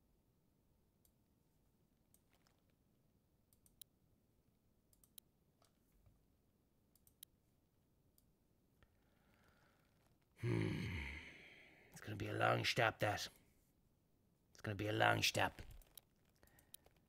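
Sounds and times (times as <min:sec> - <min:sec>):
computer mouse clicks: 0:03.5 - 0:03.9, 0:04.9 - 0:05.8, 0:06.9 - 0:07.4, 0:15.6 - 0:17.0.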